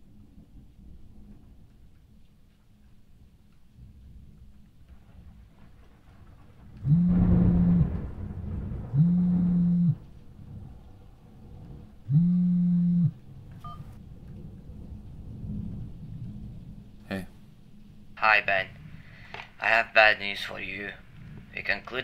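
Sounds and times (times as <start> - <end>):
mobile phone vibrating: 6.8 - 7.9, 9.0 - 10.0, 12.1 - 13.2.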